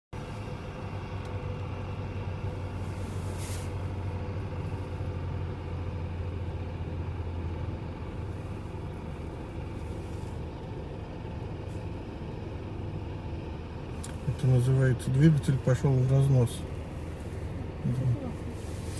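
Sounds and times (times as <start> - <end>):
diesel engine racing at high revs: 0.2 - 18.9
hiss burst: 3.0 - 3.8.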